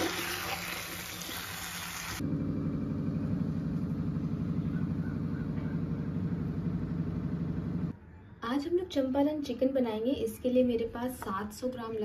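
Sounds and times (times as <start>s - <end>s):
low machine hum: 2.2s - 8.4s.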